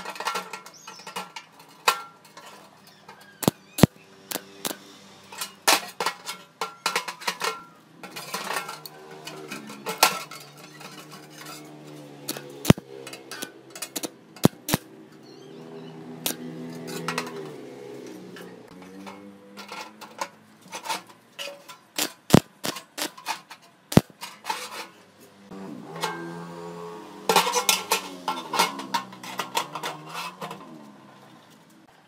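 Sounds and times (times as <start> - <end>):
metal clinks and knocks: 27.3 - 30.8.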